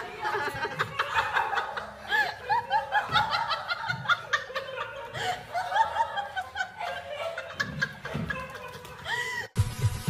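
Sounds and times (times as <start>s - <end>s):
people laughing: 0.0s - 9.6s.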